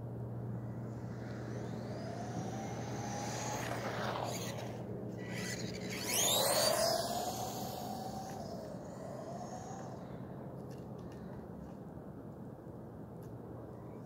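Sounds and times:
rc truck electric motor whine: 0.6s - 10.4s.

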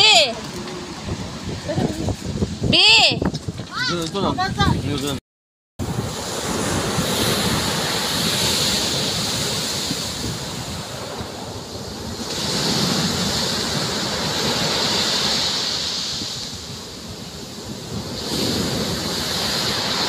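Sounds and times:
sea waves breaking on pebbles: 5.8s - 20.0s.

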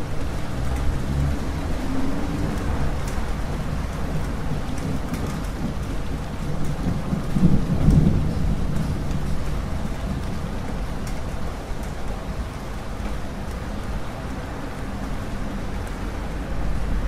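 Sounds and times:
raindrops ticking: 0.0s - 17.0s
steady rain falling: 0.0s - 17.0s
low rumble of thunder: 0.9s - 11.5s.

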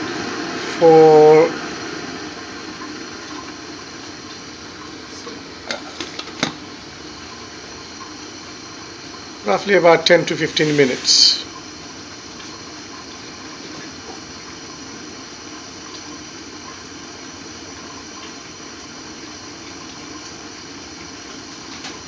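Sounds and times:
gas burner hissing: 0.0s - 16.4s.

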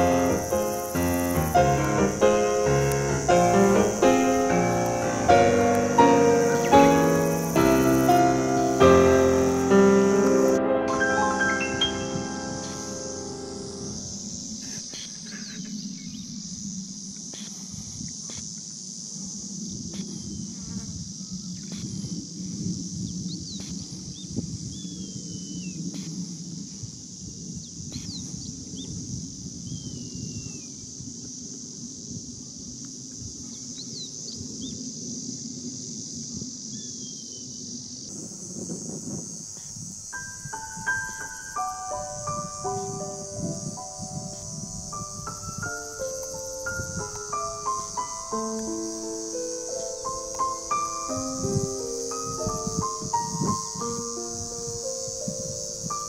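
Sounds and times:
high-pitched insect chorus: 0.0s - 56.0s
steady high hiss: 0.0s - 56.0s
birds chirping and whistling: 11.0s - 13.8s.

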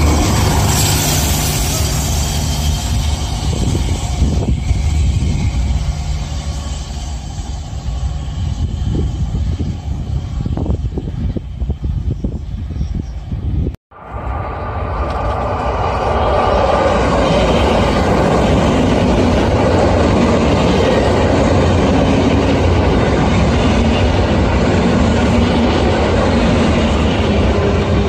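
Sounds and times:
electric train running past: 0.0s - 28.0s.

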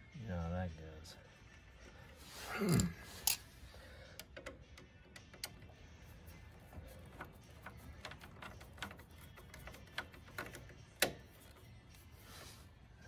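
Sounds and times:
socket ratchet clicking: 3.2s - 3.4s.

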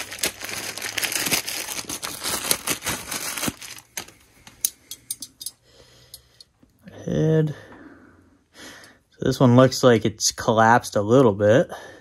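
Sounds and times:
packaging crinkling and tearing: 0.0s - 4.6s.

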